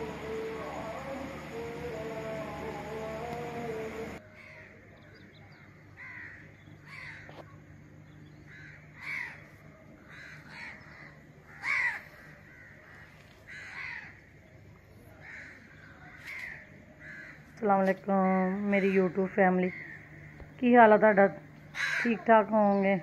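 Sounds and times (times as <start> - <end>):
faint low hum: 0.0 - 23.0
crows cawing: 4.2 - 4.8, 6.0 - 7.4, 8.5 - 14.3, 15.2 - 17.6, 18.2 - 20.6, 21.7 - 22.4.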